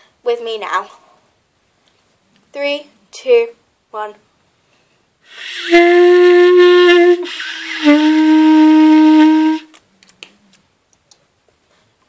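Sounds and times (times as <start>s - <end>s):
clarinet long held notes: 5.3s - 9.7s.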